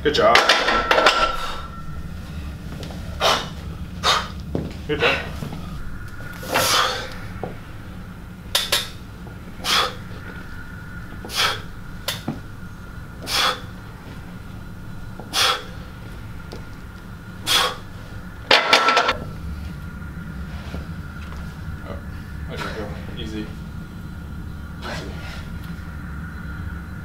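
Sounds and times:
sharp forced exhales: 1.2s - 4.4s, 5.0s - 7.4s, 9.6s - 10.1s, 11.2s - 12.2s, 13.2s - 13.8s, 15.3s - 15.9s, 17.4s - 17.9s, 24.8s - 25.6s.

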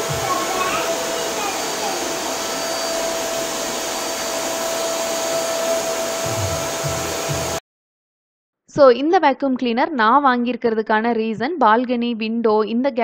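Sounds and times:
vacuum cleaner running: 0.0s - 7.6s.

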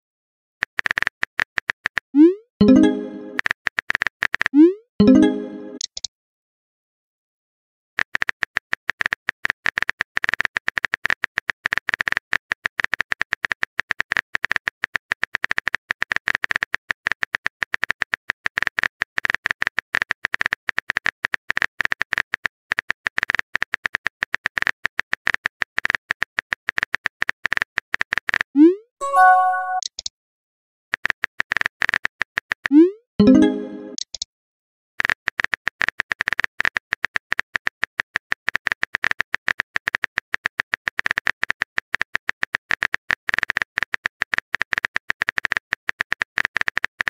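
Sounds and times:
message sent swoop and chimes: 2.6s - 3.4s, 5.0s - 5.8s, 29.0s - 29.9s, 33.2s - 34.0s.

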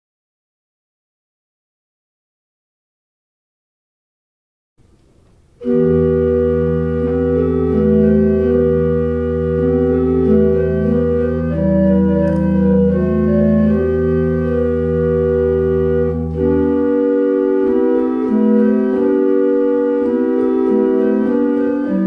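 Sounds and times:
organ chords: 4.8s - 22.0s.

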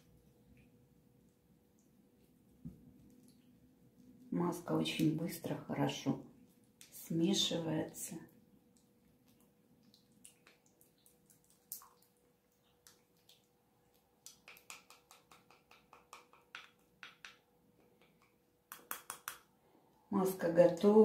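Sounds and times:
spatula clicking in glass bowl: 18.0s - 19.4s.

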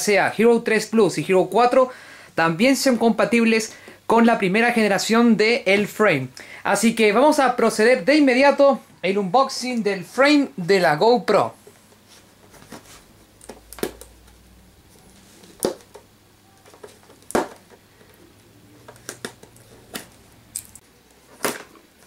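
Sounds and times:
plastic packaging crackling: 16.6s - 18.2s.

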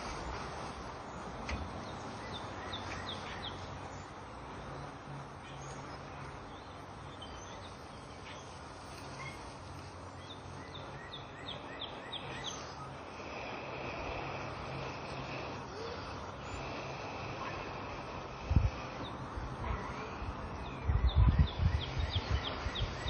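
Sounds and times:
bird chirps: 5.4s - 13.1s, 20.6s - 23.0s.

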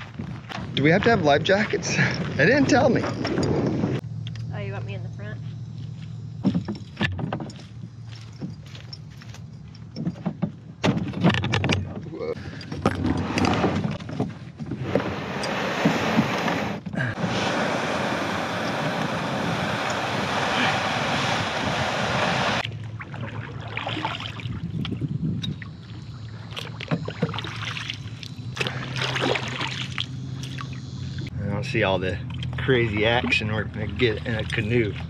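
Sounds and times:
canoe hull scraping over mud: 12.9s - 22.6s
paddle strokes and splashes: 18.8s - 25.0s, 25.8s - 30.8s.

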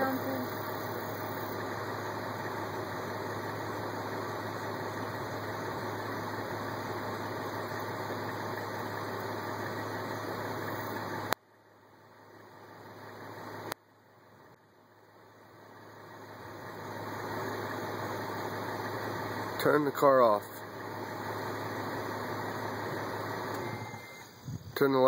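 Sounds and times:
car engine idling: 0.0s - 25.0s
engine cutoff click: 23.2s - 24.5s.

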